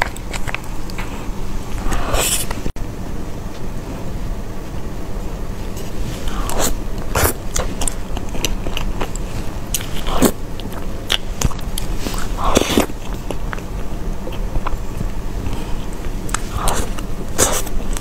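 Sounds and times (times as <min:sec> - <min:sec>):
wet mouth eating sounds: 0:06.2 - 0:18.0.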